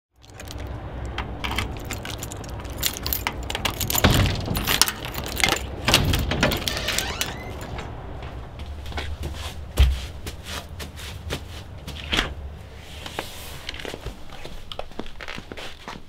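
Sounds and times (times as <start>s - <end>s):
small hard objects clinking: 0.2s - 5.8s
steady low rumble: 0.2s - 14.7s.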